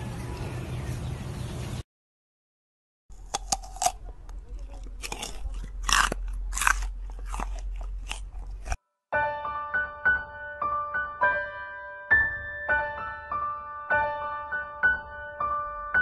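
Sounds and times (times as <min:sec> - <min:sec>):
deer chewing crunches: 0:03.2 - 0:08.8.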